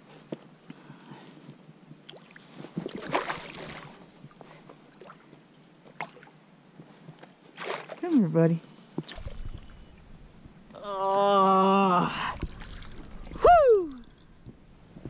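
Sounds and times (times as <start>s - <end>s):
water sloshing: 2.1s - 5.3s, 7.5s - 8.3s, 9.0s - 15.0s
fish thrashing at water surface: 2.8s - 4.0s, 9.0s - 10.0s, 12.2s - 14.6s
loud water splash: 9.1s - 9.7s, 12.2s - 14.2s.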